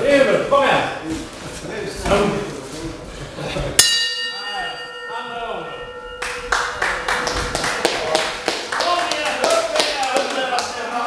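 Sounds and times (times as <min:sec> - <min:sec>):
boxing ring bell ringing: 0:03.8 - 0:07.6.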